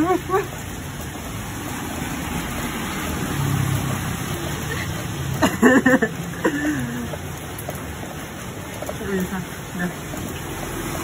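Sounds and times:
person's voice: 0.0s - 0.6s, 8.9s - 10.2s
rain hissing: 0.0s - 11.0s.

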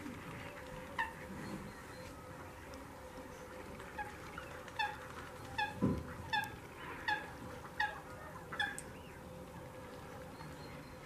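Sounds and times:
wildfowl honking: 0.9s - 1.3s, 3.9s - 8.9s.

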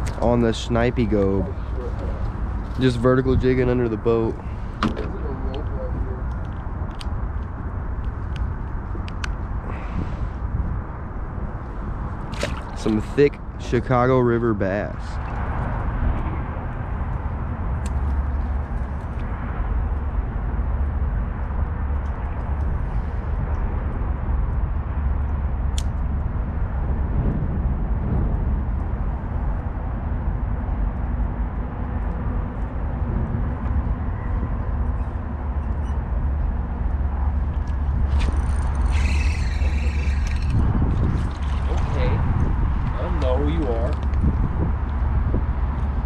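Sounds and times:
wind buffeting microphone: 0.0s - 46.0s
low rumble: 15.1s - 46.0s
fishing reel whirring: 38.0s - 40.6s.

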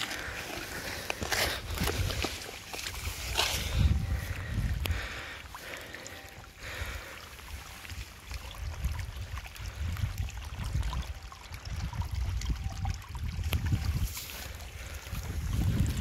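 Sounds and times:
water trickling in a channel: 0.0s - 16.0s
wind rumble on microphone: 1.2s - 5.3s, 7.6s - 16.0s.

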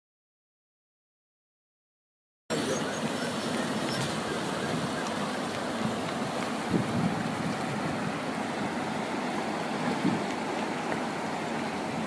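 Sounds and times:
river rushing over rocks: 2.5s - 12.0s.

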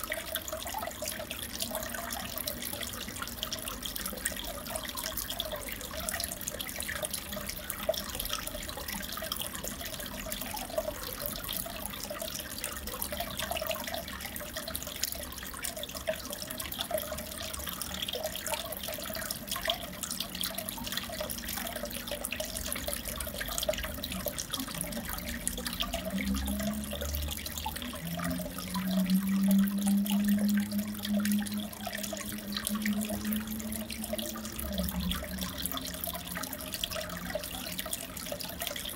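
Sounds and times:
aquarium water trickling: 0.0s - 38.9s
low hum: 24.8s - 38.2s.

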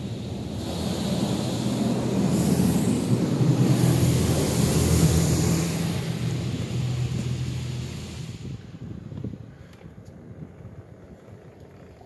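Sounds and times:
water spraying against car: 0.0s - 8.6s
car wash machinery hum: 0.0s - 9.0s.

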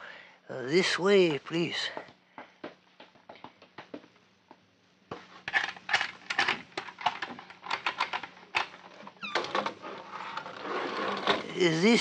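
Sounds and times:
soft footsteps: 1.8s - 5.4s.

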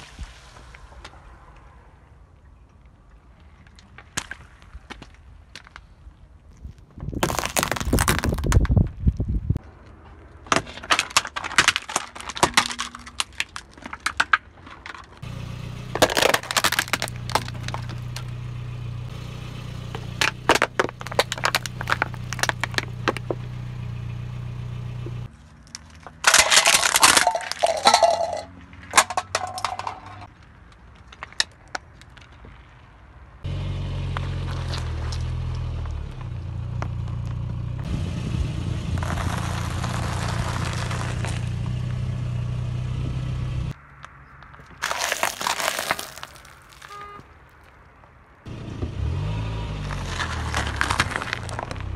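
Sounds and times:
car tyre crushing objects: 3.9s - 33.0s, 34.0s - 37.6s, 38.9s - 42.2s, 43.8s - 51.9s
car engine humming: 15.2s - 25.3s, 33.4s - 44.3s, 48.5s - 51.9s.

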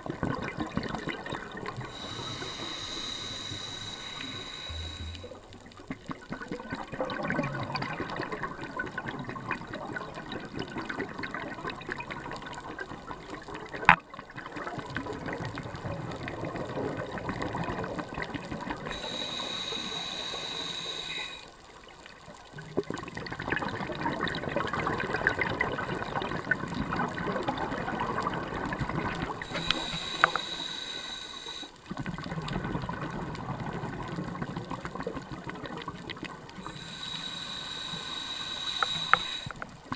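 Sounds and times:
bubbling diver exhalation: 1.8s - 5.4s
regulator inhalation hiss: 1.8s - 5.5s, 18.9s - 21.6s, 29.4s - 31.8s, 36.6s - 39.6s.

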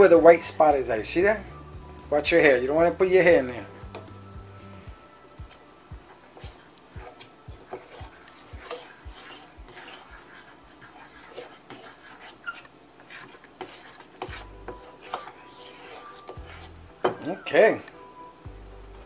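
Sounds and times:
fork scraping a bowl: 6.3s - 17.4s.

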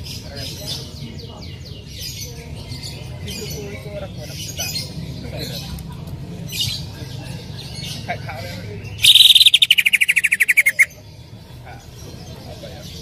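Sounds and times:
bird chirping and trilling: 7.6s - 11.0s.

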